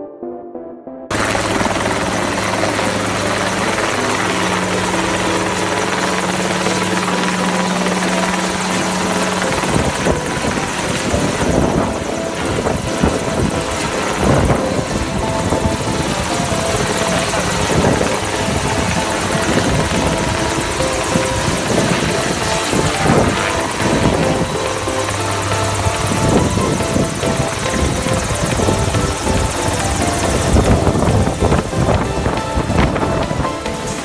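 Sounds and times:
helicopter rotor and engine: 1.1 - 34.0.

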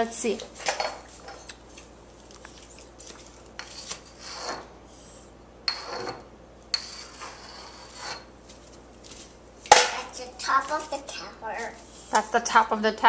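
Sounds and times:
chalk scratching on blackboard: 3.6 - 4.6, 6.8 - 8.3.

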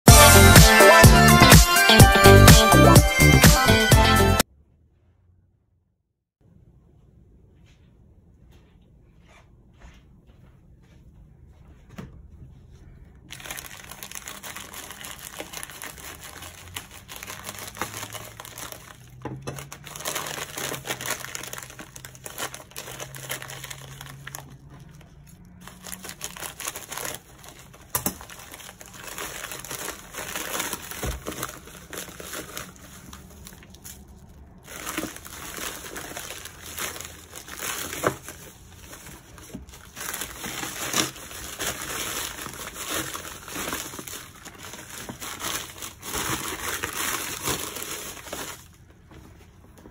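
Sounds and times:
plastic mailer crinkling: 13.3 - 49.1
scissors cutting plastic: 25.7 - 32.9, 40.2 - 47.9.

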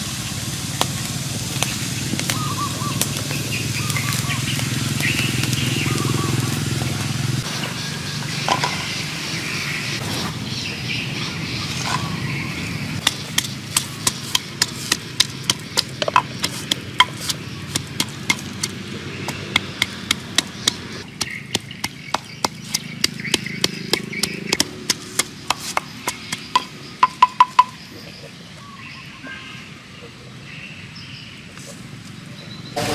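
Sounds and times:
pestle pounding in wooden mortar: 13.0 - 27.8.

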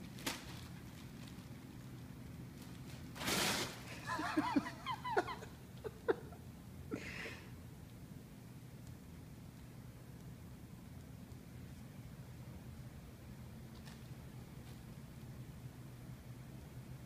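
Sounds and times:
person giggling: 4.0 - 7.4.

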